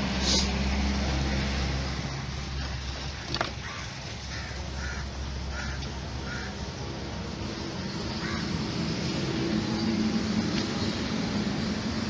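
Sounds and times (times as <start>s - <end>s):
bird calling: 2.6s - 6.6s, 7.9s - 8.6s.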